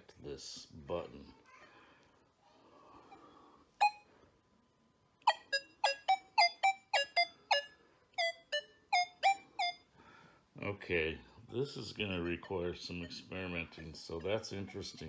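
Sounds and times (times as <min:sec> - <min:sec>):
metal detector beeps: 0:12.1 - 0:15.0.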